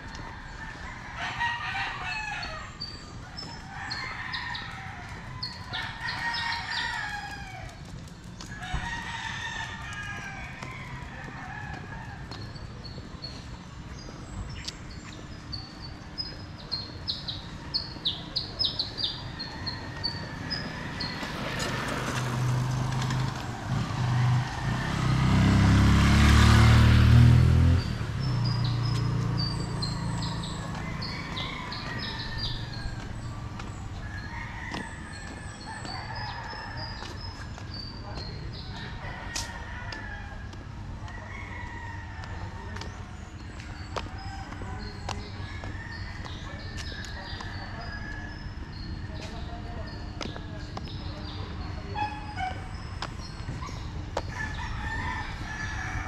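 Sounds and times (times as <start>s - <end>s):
roosters crowing: 0.0s - 12.5s, 17.5s - 37.7s, 38.6s - 43.4s, 44.0s - 48.8s, 54.2s - 56.0s
vehicle engine passing: 19.7s - 37.9s
small birds chirping: 27.8s - 39.5s.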